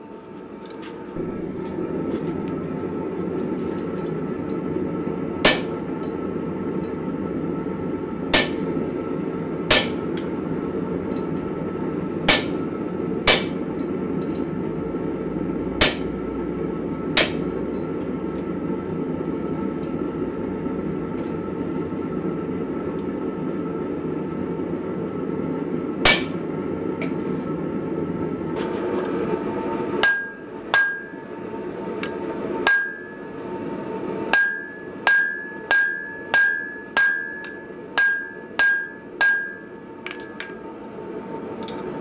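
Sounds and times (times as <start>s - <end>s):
hammer striking hot steel on anvil: 5.4s - 6.2s, 8.3s - 8.8s, 9.7s - 10.3s, 12.3s - 14.5s, 15.7s - 16.4s, 17.2s - 18.1s, 26.0s - 26.5s, 30.0s - 31.2s, 32.0s - 33.2s, 34.3s - 40.6s.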